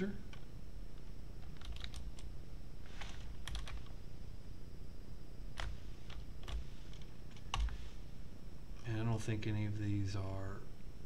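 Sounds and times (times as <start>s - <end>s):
computer keyboard typing: 0.3s - 2.3s, 3.0s - 4.0s, 5.6s - 7.8s.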